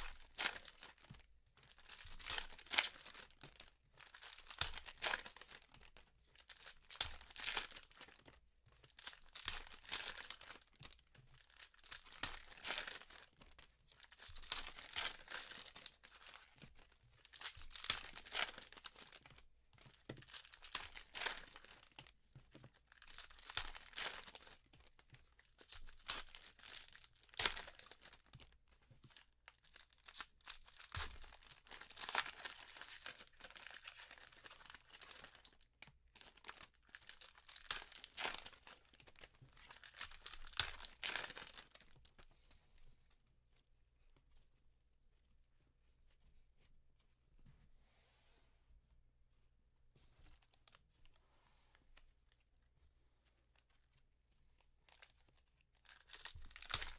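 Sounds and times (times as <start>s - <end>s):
foil wrappers crinkling: 0.0s - 19.4s, 20.0s - 28.5s, 29.1s - 42.2s, 54.9s - 56.9s.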